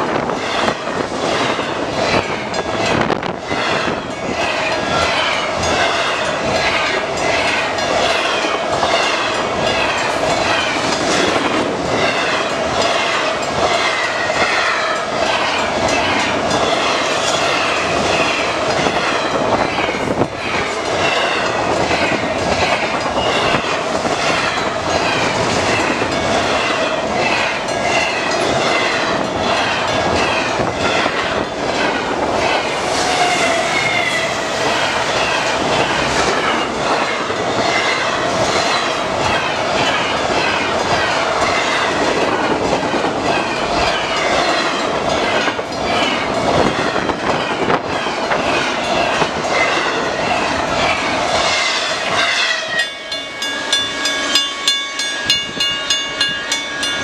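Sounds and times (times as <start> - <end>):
train passing at speed: 0.0 - 57.0
wheels clattering on rails: 0.0 - 57.0
ringing tone from wheels: 22.9 - 40.6, 52.0 - 57.0.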